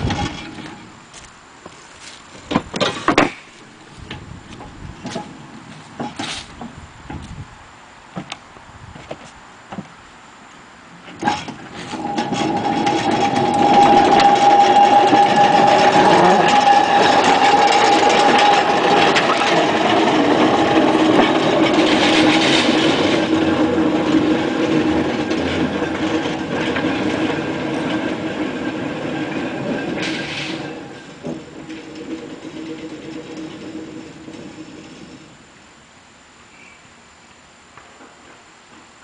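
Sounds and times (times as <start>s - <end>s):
steel wheels clattering on rails: 0.0s - 0.9s, 11.0s - 35.6s
electric motor whining: 11.9s - 22.0s.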